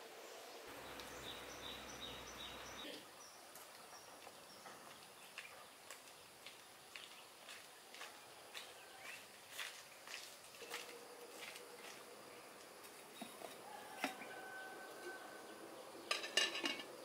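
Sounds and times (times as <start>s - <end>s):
bird chirping: 0.2s - 6.0s
footsteps on dirt path: 4.0s - 12.1s.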